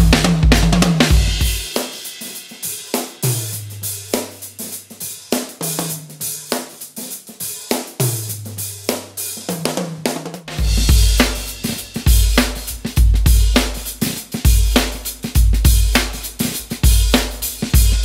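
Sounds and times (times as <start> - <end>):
cymbals and hi-hat: 0.0 - 18.0
drum kit groove: 0.0 - 18.0.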